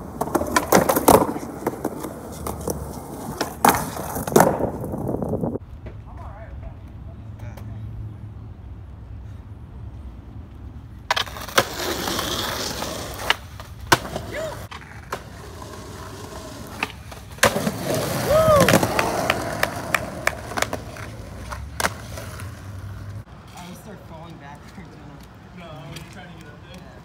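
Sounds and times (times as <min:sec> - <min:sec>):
skateboard clacks: 0:00.0 - 0:06.0, 0:11.1 - 0:23.2
skateboard wheels rolling on concrete: 0:00.0 - 0:27.0.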